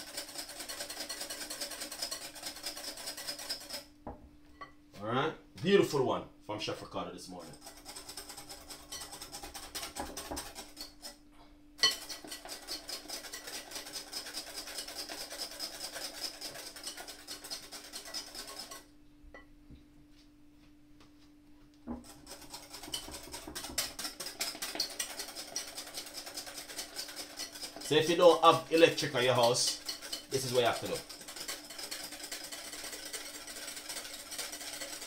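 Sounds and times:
whisk scraping glass bowl: 0.0 - 3.9, 7.4 - 11.2, 11.8 - 18.9, 21.9 - 35.0.

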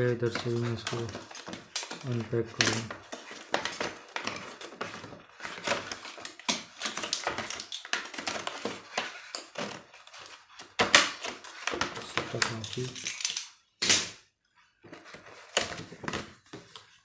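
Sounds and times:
plastic blister pack crackling: 0.0 - 13.6.

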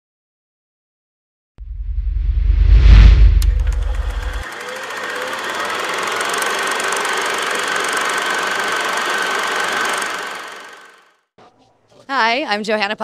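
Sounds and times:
thin steady whine: 3.4 - 11.0
film projector clattering: 3.7 - 11.1.

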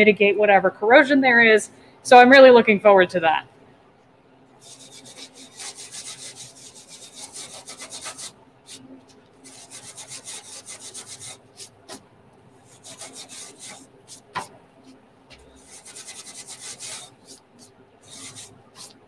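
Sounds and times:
hand scrubbing painted metal panel: 4.6 - 8.8, 9.4 - 12.0, 12.6 - 14.4, 15.6 - 19.0.

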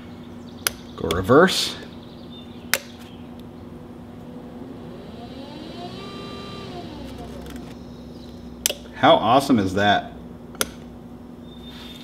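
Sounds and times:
trolling motor whine: 2.0 - 8.7.

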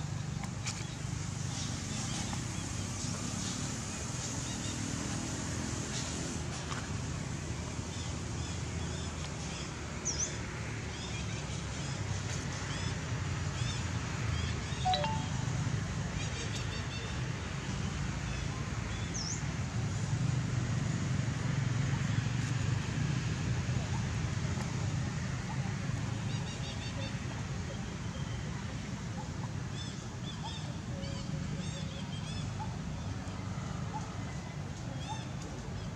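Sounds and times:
faint high chirps: 14.9 - 15.6.

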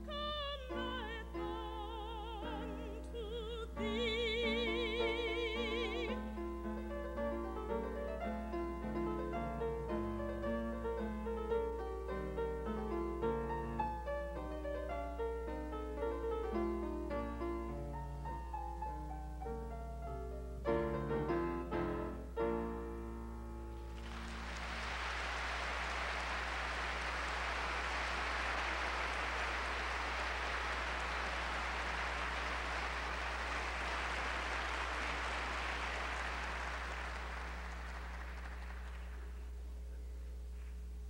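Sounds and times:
grand piano chords: 0.0 - 40.1
audience applause: 23.9 - 39.5.

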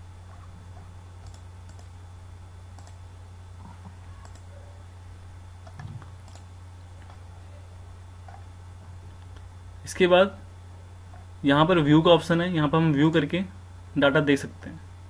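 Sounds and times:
low electrical hum: 0.0 - 15.0
computer mouse clicks: 1.2 - 1.9, 2.8 - 3.0, 4.2 - 4.5, 5.6 - 7.2.

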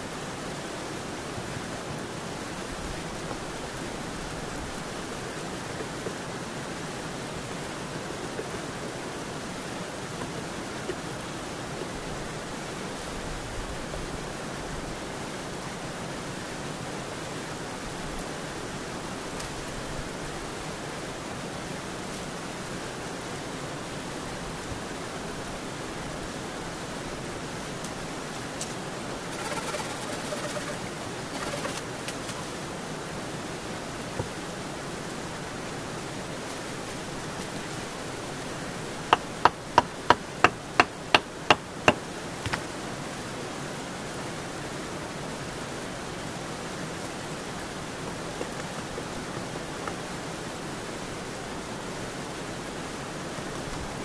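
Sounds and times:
rain falling: 0.0 - 54.0
sharp wooden knocks: 39.1 - 42.6.

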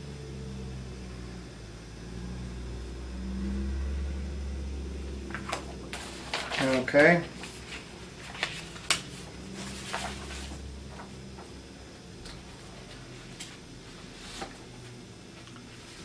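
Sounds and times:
low room hum: 0.0 - 16.0
papers rustling and tapping: 5.3 - 11.6.

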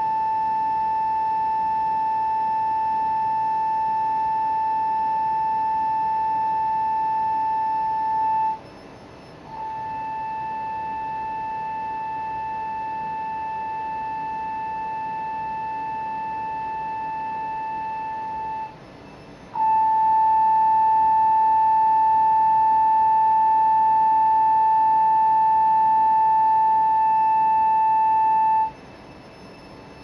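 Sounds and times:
steady test tone: 0.0 - 30.0.

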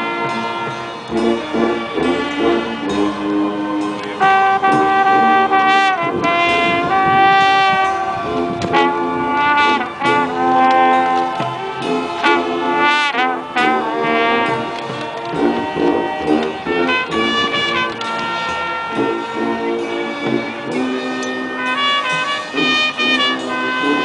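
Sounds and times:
brass sustained chords: 0.0 - 24.0
marching band playing funk: 0.0 - 24.0.

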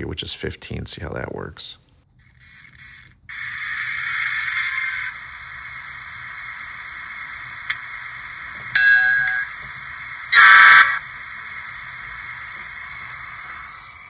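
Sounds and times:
hissy diesel engine drone: 3.3 - 14.0
short tone: 8.8 - 9.5.

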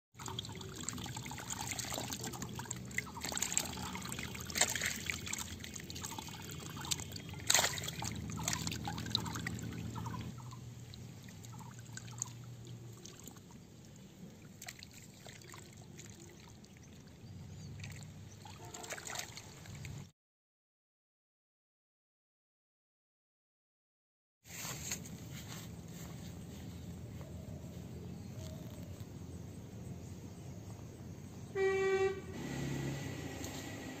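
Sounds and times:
fish splashing in shallow water: 0.2 - 20.1
water trickling: 0.2 - 20.1.

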